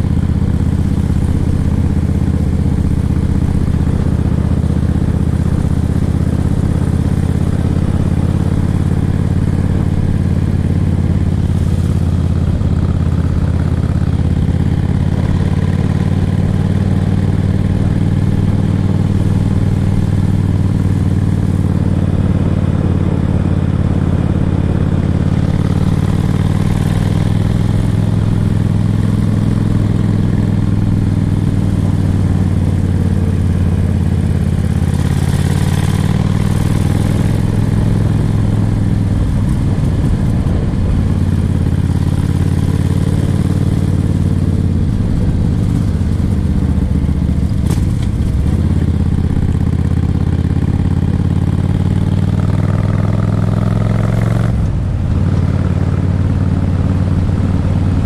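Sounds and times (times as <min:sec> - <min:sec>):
motorcycle engine running: 0:00.0 - 0:58.0
wind noise: 0:37.1 - 0:42.3.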